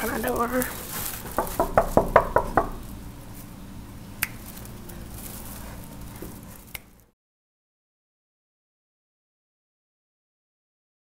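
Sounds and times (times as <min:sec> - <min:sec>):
low room hum: 0:00.0 - 0:07.2
knocks on a door: 0:01.3 - 0:02.8.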